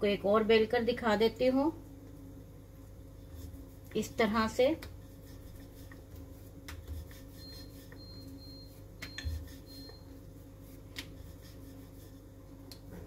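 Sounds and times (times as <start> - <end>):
steady low hum: 0.0 - 13.0
hands tapping dough on board: 6.6 - 7.1.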